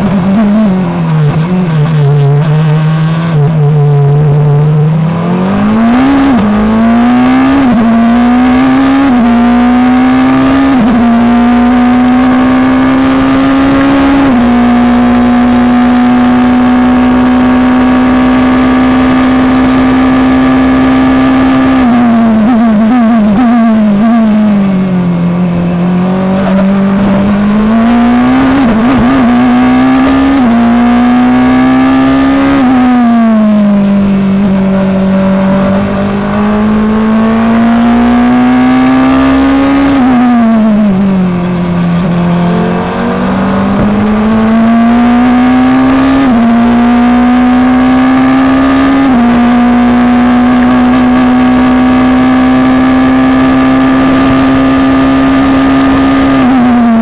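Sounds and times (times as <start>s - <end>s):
racing car engine: 0.0s - 57.0s.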